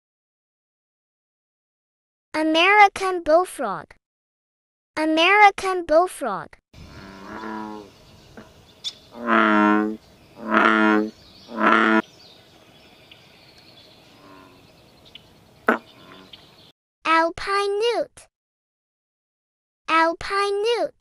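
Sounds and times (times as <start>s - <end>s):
bullfrog croaking: 6.8s - 16.6s.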